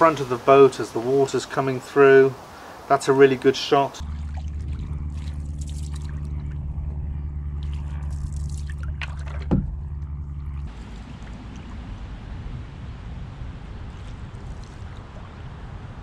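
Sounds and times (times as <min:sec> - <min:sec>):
water trickling and dripping: 0:00.0 - 0:06.6, 0:07.6 - 0:16.0
steady low hum: 0:04.0 - 0:16.0.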